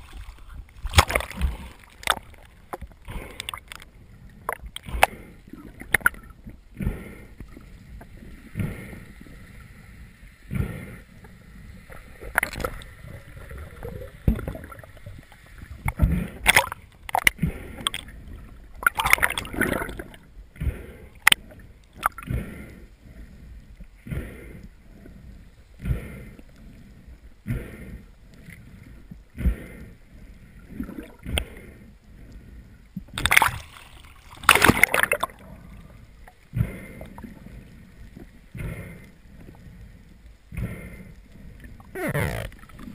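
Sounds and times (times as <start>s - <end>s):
water splashing: 0.0s - 9.8s, 11.8s - 22.3s, 30.7s - 31.6s, 33.1s - 39.6s, 40.6s - 42.9s.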